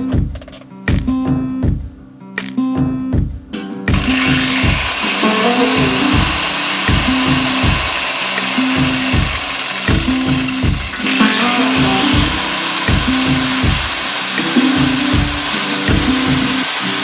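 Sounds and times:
angle grinder whining: 0:03.9 - 0:17.0.

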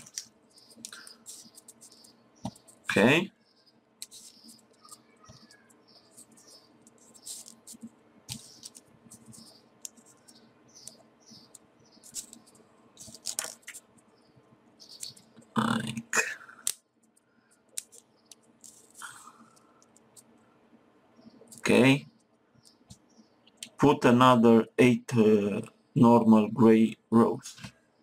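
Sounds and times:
paper clicks and rustles: 0:00.0 - 0:02.9, 0:06.2 - 0:13.8, 0:17.0 - 0:20.3
handling noise: 0:04.0 - 0:14.0.

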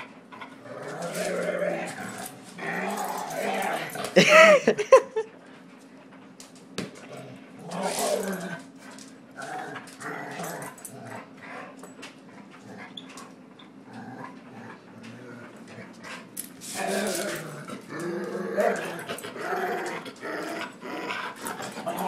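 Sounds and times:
dog growling: 0:00.4 - 0:04.6, 0:07.1 - 0:08.7, 0:09.4 - 0:11.8, 0:12.4 - 0:13.0, 0:13.8 - 0:22.0.

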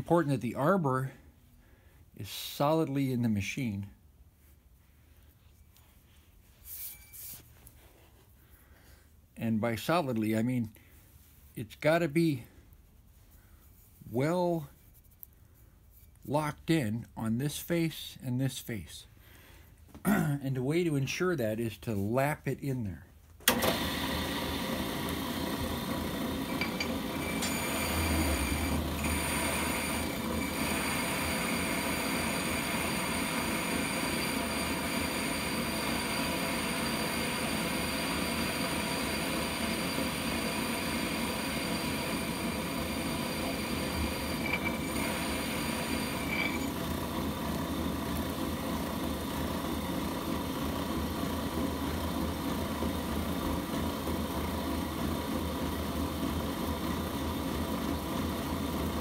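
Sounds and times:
motor whine: 0:23.5 - 0:50.4
metal grinding and scraping: 0:26.5 - 0:31.6, 0:43.7 - 0:46.8.

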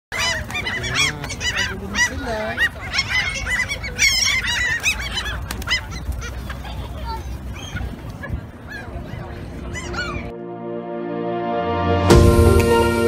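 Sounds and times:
gulls squawking: 0:00.1 - 0:10.4.

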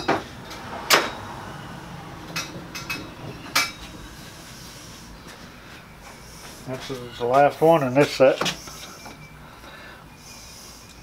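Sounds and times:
steel tubes clinking: 0:02.3 - 0:03.9.

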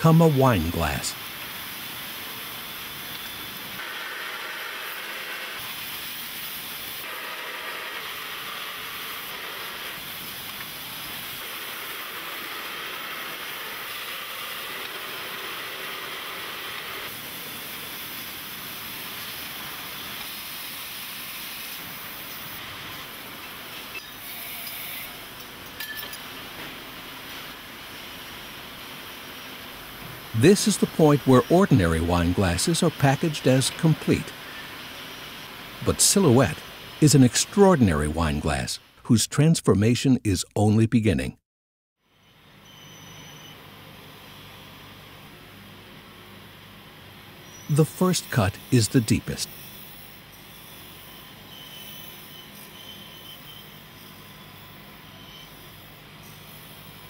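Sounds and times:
factory machinery hissing: 0:27.2 - 0:38.6, 0:47.2 - 0:57.0.

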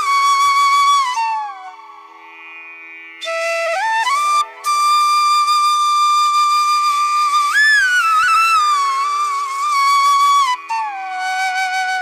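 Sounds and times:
slow flute melody: 0:00.0 - 0:02.0, 0:03.2 - 0:12.0
faint steady drone: 0:00.0 - 0:07.5.

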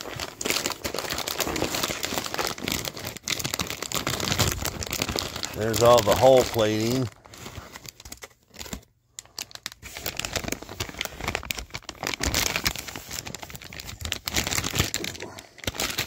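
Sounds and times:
plastic bag crinkling: 0:00.0 - 0:16.0.

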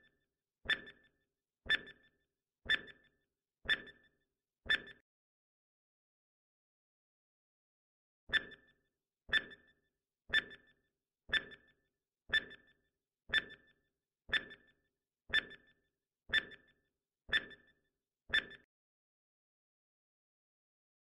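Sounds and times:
timer ticks with ringing tone: 0:00.0 - 0:05.0, 0:08.3 - 0:18.7.

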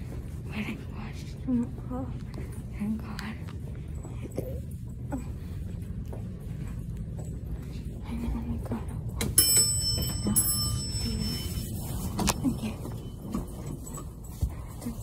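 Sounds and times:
low steady rumble: 0:00.0 - 0:15.0
metallic clinks: 0:09.0 - 0:15.0.

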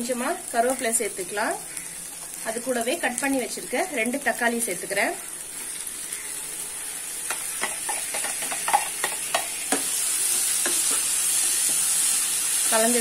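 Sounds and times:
tomatoes sizzling in oil: 0:00.0 - 0:13.0
spatula tapping and scraping: 0:07.3 - 0:11.9.

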